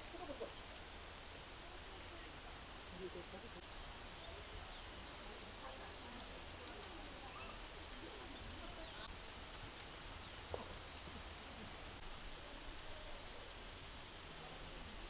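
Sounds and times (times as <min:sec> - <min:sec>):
birds: 0:00.0 - 0:12.1.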